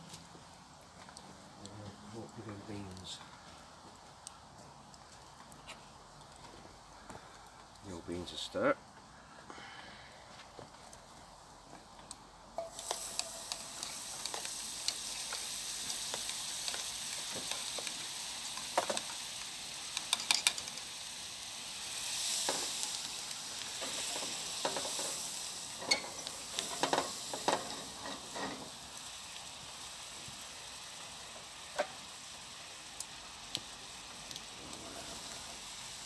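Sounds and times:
butter sizzling in frying pan: 0:10.8 - 0:36.0.

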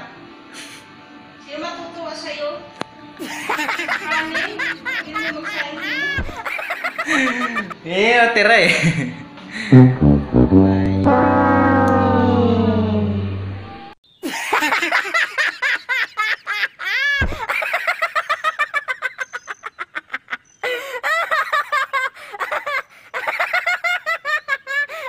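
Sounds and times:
high-pitched cackling laugh: 0:03.2 - 0:07.8, 0:14.2 - 0:25.0
descending brass wah-wah effect: 0:09.6 - 0:14.0.

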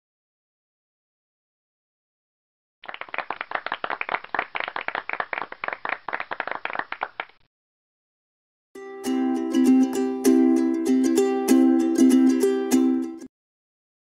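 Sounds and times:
small group clapping: 0:02.8 - 0:07.5.

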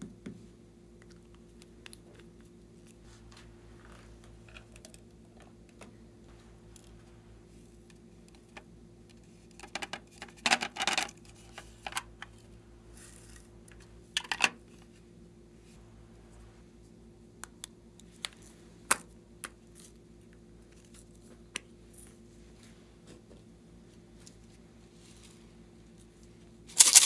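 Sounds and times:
plastic containers clicking and rattling: 0:09.6 - 0:12.1, 0:26.8 - 0:27.0.

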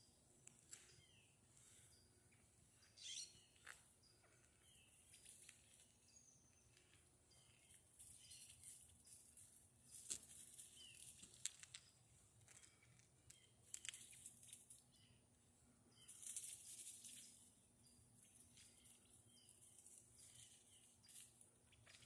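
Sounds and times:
soft high chirps: 0:00.8 - 0:08.6
rustling in dry leaves: 0:07.7 - 0:11.8, 0:16.1 - 0:17.7.

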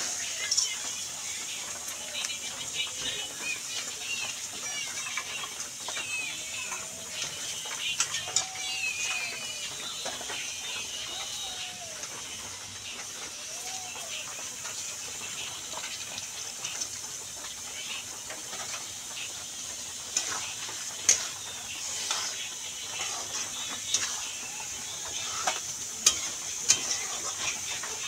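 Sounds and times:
fish sizzling in pan: 0:00.0 - 0:28.0
metal spatula scraping pan: 0:20.1 - 0:28.0.

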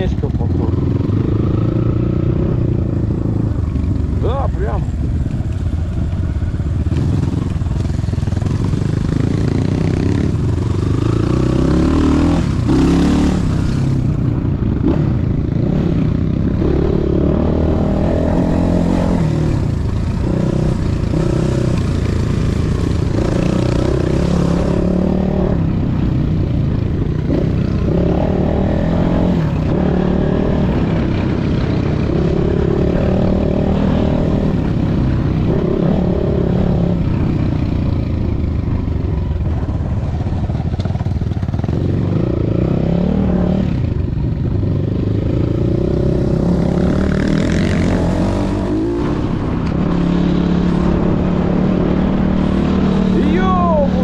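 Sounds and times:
vehicle engine revving: 0:44.7 - 0:54.0.

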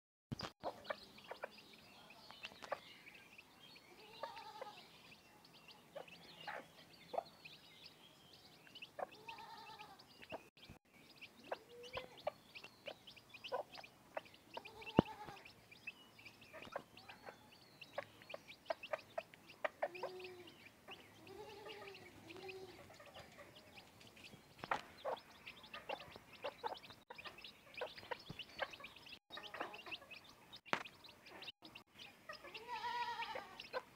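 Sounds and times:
chicks peeping: 0:00.3 - 0:33.9
hen clucking: 0:00.6 - 0:01.6, 0:03.9 - 0:04.8, 0:08.7 - 0:10.5, 0:11.1 - 0:33.9.

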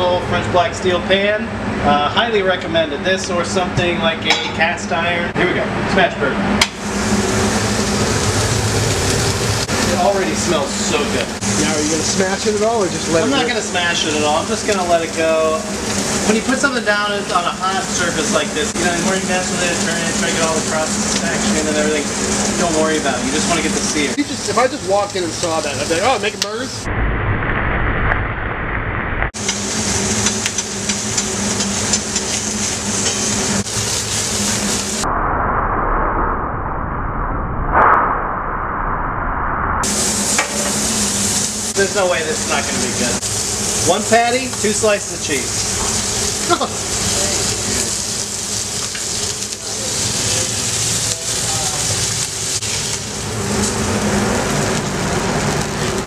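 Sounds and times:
steady low hum: 0:00.0 - 0:56.0
meat sizzling in a pan: 0:06.8 - 0:26.8, 0:29.4 - 0:35.0, 0:39.8 - 0:56.0
low rumble: 0:26.8 - 0:29.4, 0:30.7 - 0:43.9.

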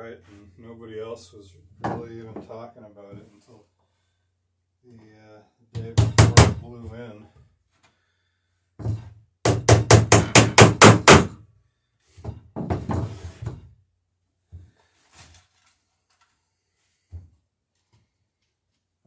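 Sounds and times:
hammer blows on rivets: 0:08.8 - 0:11.4.

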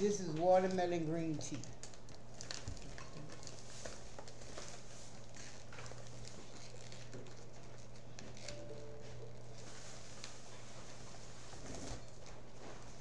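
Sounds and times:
low steady hum: 0:00.0 - 0:13.0
plastic shrink-wrap crinkling: 0:01.5 - 0:08.6.

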